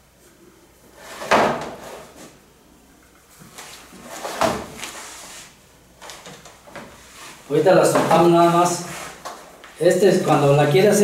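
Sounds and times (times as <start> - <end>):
metal baking sheet scraping: 7.0 - 9.2.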